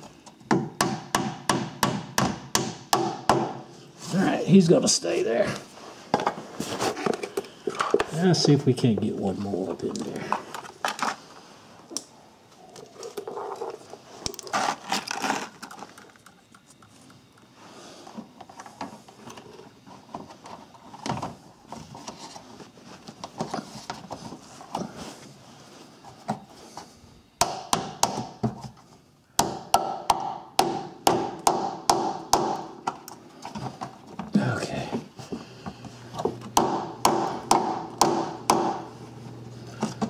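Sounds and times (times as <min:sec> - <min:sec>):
plastic shield scraping: 0:13.2 - 0:16.0.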